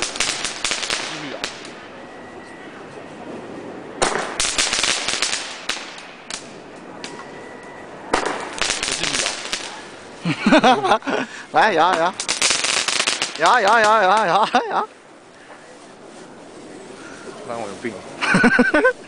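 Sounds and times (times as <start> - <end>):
firework sharp crack: 0.0 - 1.8, 4.0 - 7.3, 8.1 - 10.2, 11.6 - 14.4
fireworks crackling: 0.0 - 19.0.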